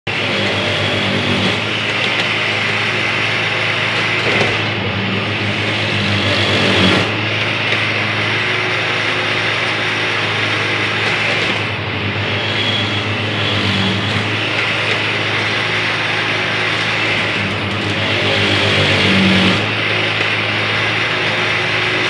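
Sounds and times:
track tamper engine humming: 0.0s - 22.0s.

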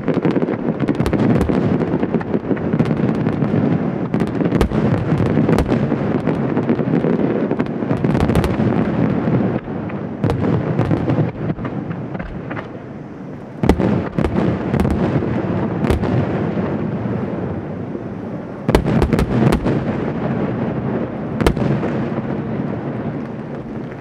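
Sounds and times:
rumble of detonations: 0.0s - 24.0s
firework shells bursting: 21.3s - 24.0s.

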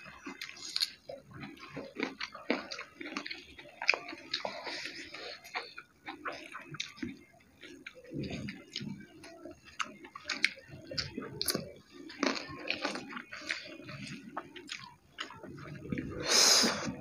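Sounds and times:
chewing and wet mouth smacks: 0.0s - 16.2s.

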